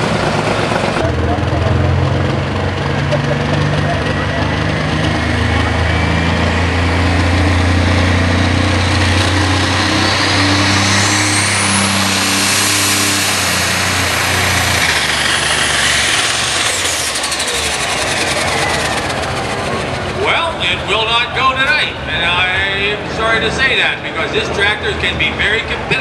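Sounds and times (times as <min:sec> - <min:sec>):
diesel tractor engine under load: 0:00.0 - 0:26.0
high-pitched turbo whine: 0:01.0 - 0:21.8.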